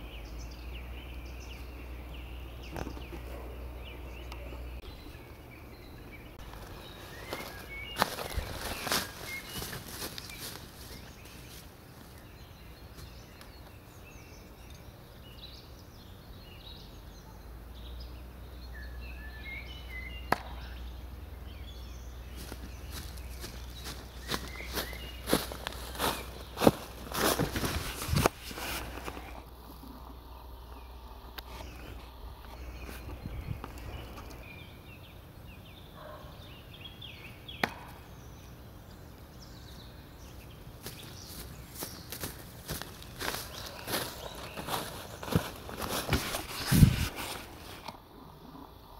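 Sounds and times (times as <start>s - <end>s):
low outdoor rumble: 0.0s - 35.8s
small birds chirping: 0.0s - 48.9s
low wind rumble: 30.2s - 34.9s.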